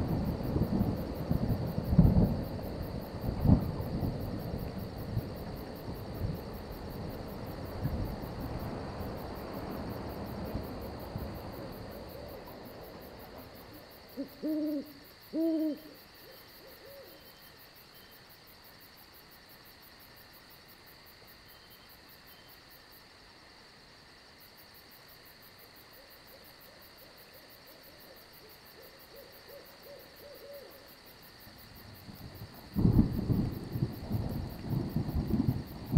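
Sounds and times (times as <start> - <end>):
thunder rumbling: 0.0 - 13.7, 31.8 - 35.9
crickets chirping: 0.0 - 35.9
owl hooting: 14.2 - 17.3, 28.8 - 30.9.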